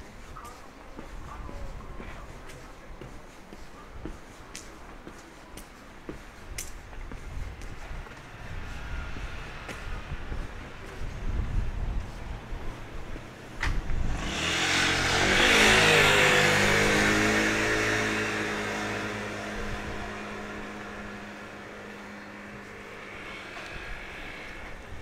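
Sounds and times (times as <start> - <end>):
car passing by: 7.8 - 11.0, 13.8 - 25.0.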